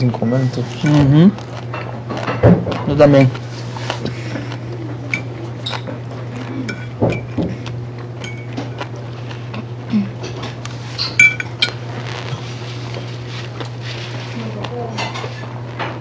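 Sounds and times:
steady low hum: 0.0 - 16.0
dishes and cutlery clinking: 6.6 - 7.5, 8.2 - 8.8, 10.2 - 11.8, 14.9 - 15.4.

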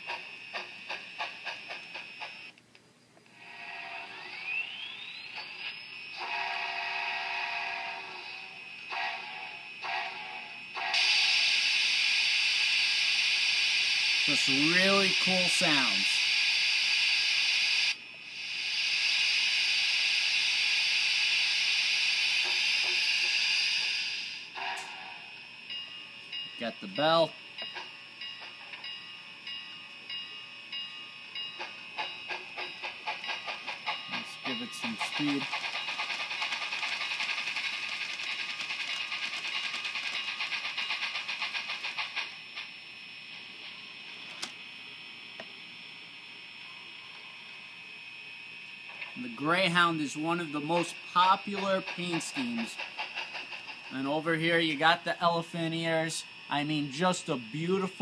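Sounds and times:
model locomotive steam hiss: 3.4 - 25.8, 31.6 - 42.8, 49.0 - 58.0.

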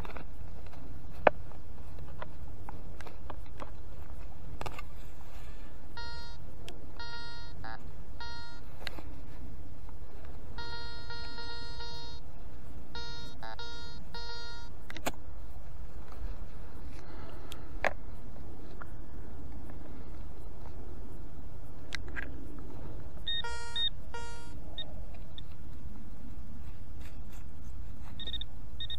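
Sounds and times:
metal detector beeps: 5.9 - 6.4, 7.0 - 8.7, 10.6 - 12.3, 12.9 - 15.0, 23.2 - 25.6, 28.0 - 28.9
metal detector warbling tones: 6.0 - 6.4, 7.0 - 8.6, 10.6 - 12.2, 12.9 - 14.7, 23.2 - 25.5
sharp clicks: 10.6 - 15.3
low rumble: 15.3 - 26.9.

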